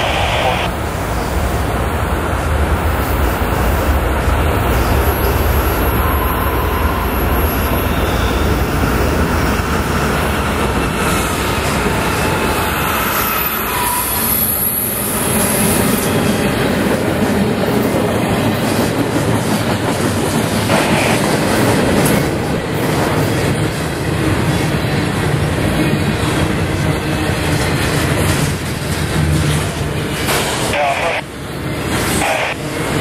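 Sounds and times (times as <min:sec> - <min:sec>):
freight train rumbling past: 0:00.0 - 0:33.0
high wheel squeal: 0:12.7 - 0:15.1.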